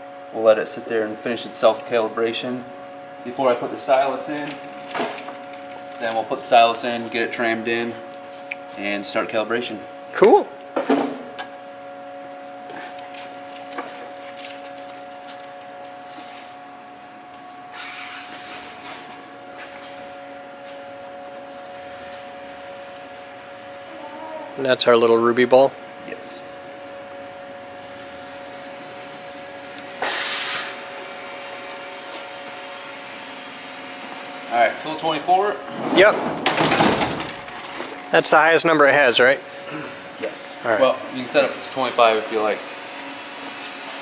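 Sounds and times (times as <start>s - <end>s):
steady machine hum: 0.0s - 44.0s
compressed air blast hissing: 30.0s - 30.9s.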